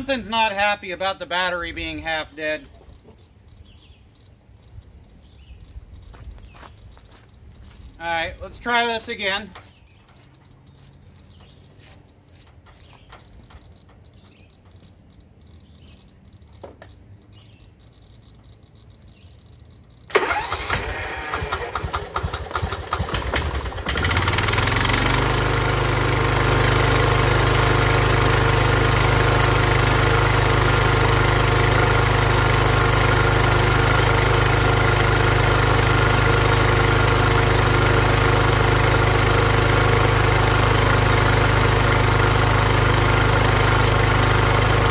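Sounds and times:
mower engine running: 0:05.6 - 0:16.8, 0:20.0 - 0:44.9
engine cranked by starter: 0:20.0 - 0:44.9.

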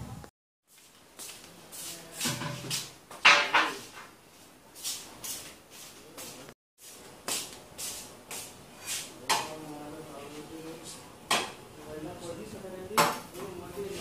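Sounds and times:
footsteps and scuffs: 0:00.6 - 0:09.1.

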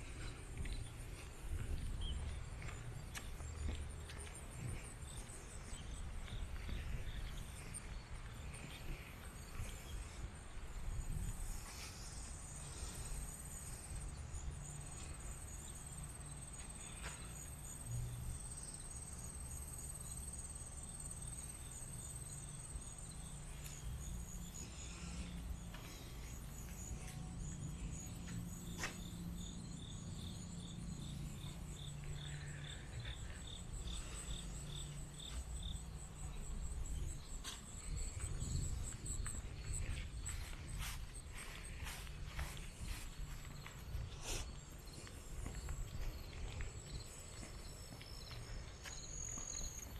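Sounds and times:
soft footsteps: 0:00.0 - 0:12.0, 0:24.8 - 0:29.2, 0:36.2 - 0:49.9
crickets chirping: 0:00.0 - 0:49.9.

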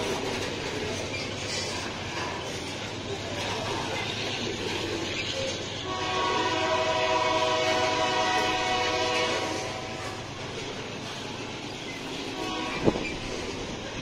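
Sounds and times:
train wheels on rails: 0:00.0 - 0:14.0
locomotive air horn: 0:05.8 - 0:10.3, 0:12.3 - 0:13.2.

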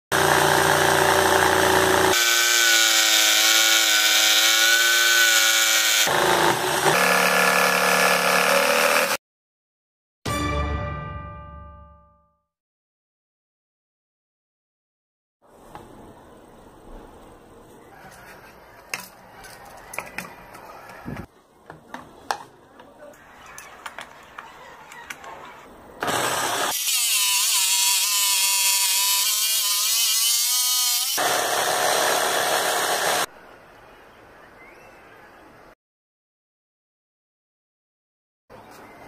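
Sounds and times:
jigsaw cutting wood: 0:00.1 - 0:09.2, 0:26.0 - 0:33.3.

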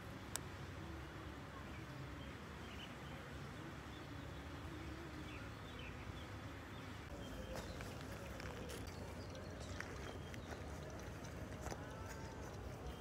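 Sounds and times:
low rumble and hiss: 0:00.0 - 0:13.0.

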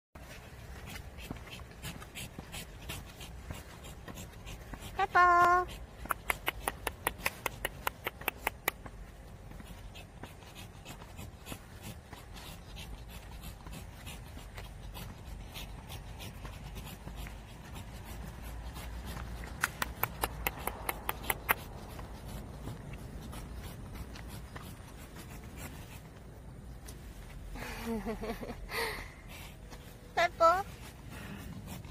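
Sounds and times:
dog claws clicking on asphalt: 0:05.7 - 0:26.2
steady low rumble: 0:08.8 - 0:31.9.

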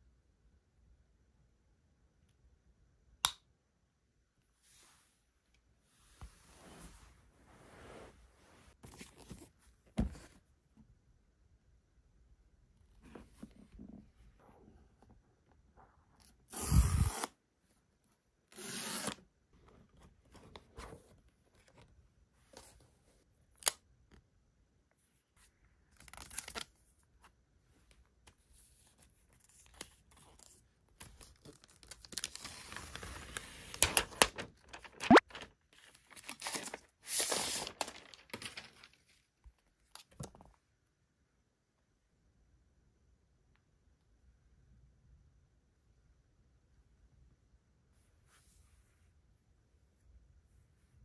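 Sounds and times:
cardboard packaging rustling: 0:31.3 - 0:39.2.

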